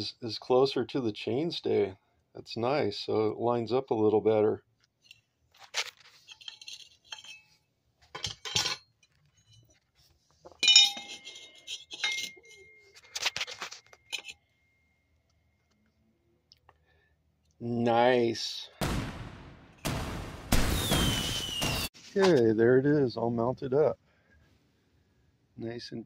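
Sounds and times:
metal clinks and clatters: 5.0s - 9.8s, 10.5s - 14.5s
thin metallic ringing tone: 10.6s - 13.2s.

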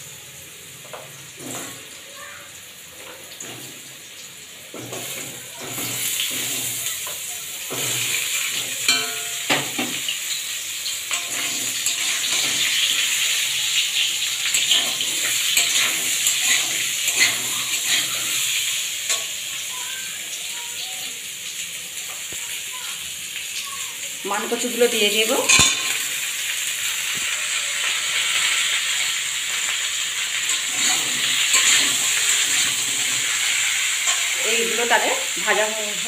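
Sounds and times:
potatoes sizzling in hot oil: 0.0s - 36.0s
metal spatula scraping pan: 11.1s - 13.3s, 14.5s - 19.4s, 30.5s - 34.4s.

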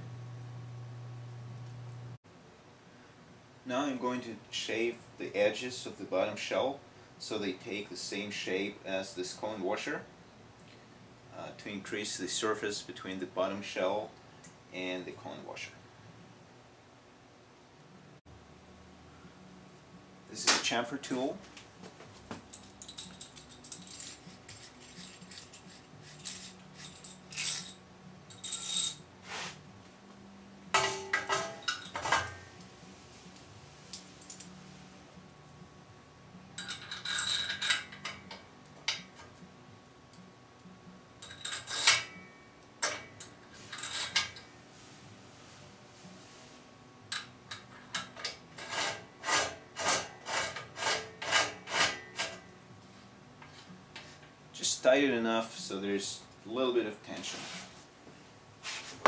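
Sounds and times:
metal tool clinking and scraping: 22.5s - 29.5s, 36.6s - 39.3s, 41.2s - 44.5s.

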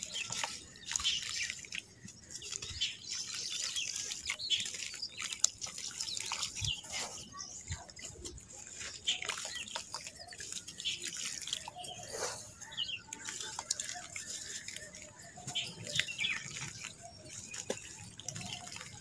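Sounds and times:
bits plopping into muddy water: 0.0s - 7.2s, 7.8s - 19.0s
dirt crumbled by hand: 8.0s - 19.0s.

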